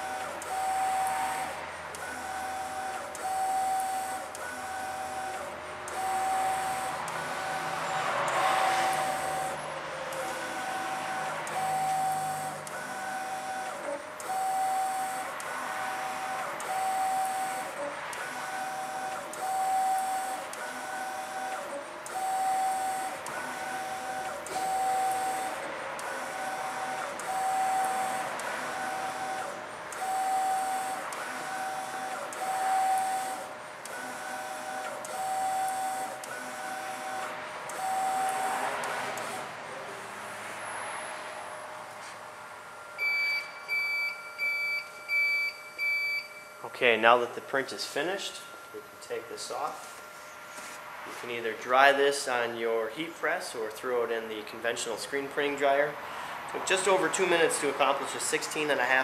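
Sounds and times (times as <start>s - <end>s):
inkjet printer carriage whirring: 0.0s - 44.4s, 54.4s - 59.0s.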